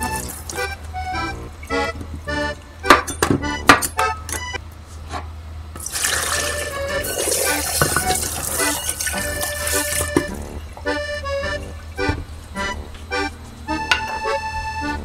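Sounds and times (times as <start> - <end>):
accordion music: 0.0 - 4.6, 6.2 - 15.0
tap running into steel sink: 7.2 - 10.4.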